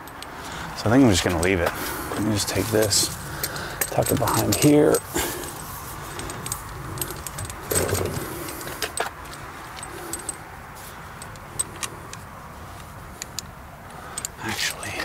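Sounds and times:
hose rustling: 1.2 - 9.0
metallic clicks and clinks: 1.2 - 15.0.

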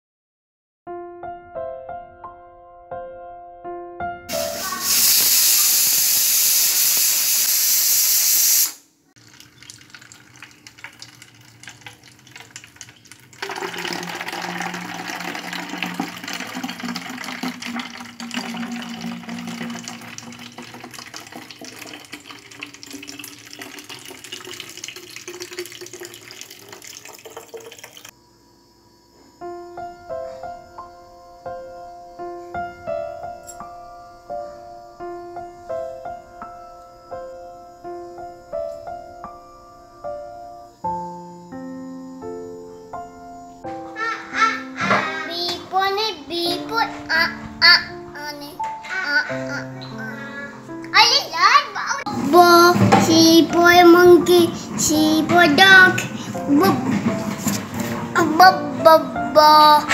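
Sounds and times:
soft piano music: 0.9 - 5.0, 29.3 - 59.9
tap water running: 4.3 - 28.1, 51.0 - 58.7
water pouring into plastic bottle: 9.2 - 28.1.

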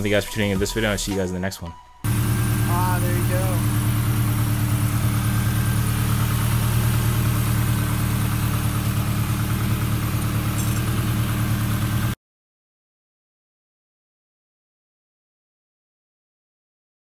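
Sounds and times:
car engine idling: 2.0 - 12.2.

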